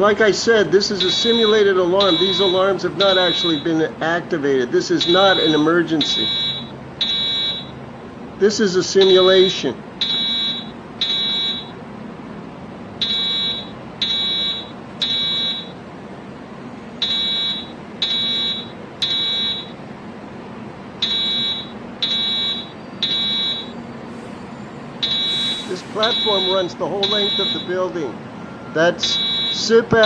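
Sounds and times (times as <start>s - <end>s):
fire alarm beeps: 0.8s - 3.8s, 5.0s - 7.8s, 9.0s - 11.8s, 13.0s - 15.8s, 17.0s - 19.8s, 21.0s - 30.0s.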